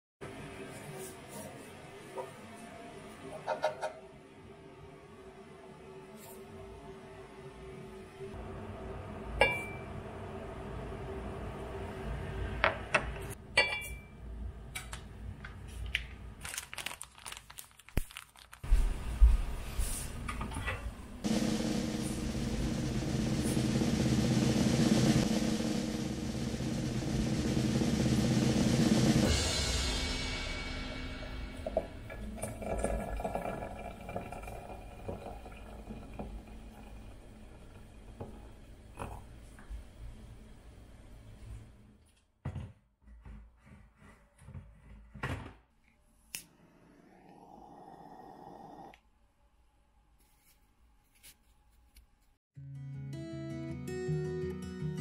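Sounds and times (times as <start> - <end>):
small glass clinks: 13.6 - 14.1
dried herbs rustling: 16.4 - 20.0
water pouring into teapot: 31.6 - 39.2.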